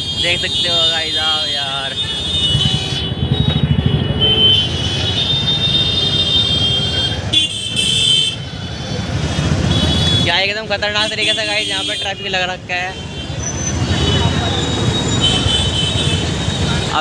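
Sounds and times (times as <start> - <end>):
vehicle horns: 0.0 - 17.0.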